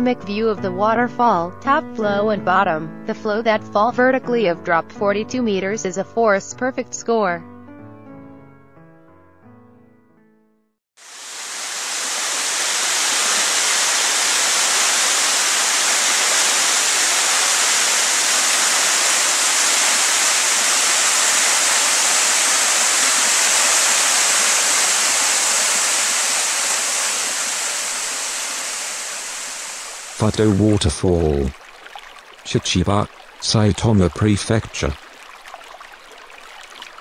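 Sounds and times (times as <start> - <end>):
waterfall rushing: 11.0 - 35.2.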